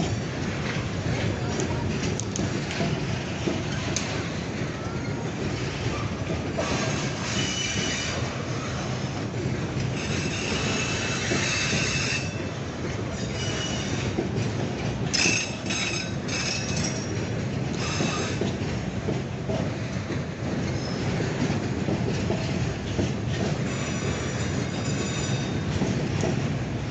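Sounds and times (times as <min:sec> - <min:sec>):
steel wheels rumbling on rail: 0:00.0 - 0:26.9
wheel squeal: 0:06.6 - 0:08.2, 0:10.0 - 0:12.4, 0:13.2 - 0:14.1.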